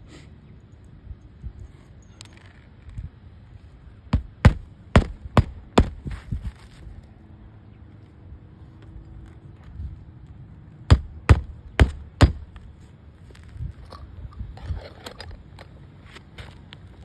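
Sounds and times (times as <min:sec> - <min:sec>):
hammer striking shingle roof: 0:04.1 - 0:06.1, 0:10.9 - 0:12.5.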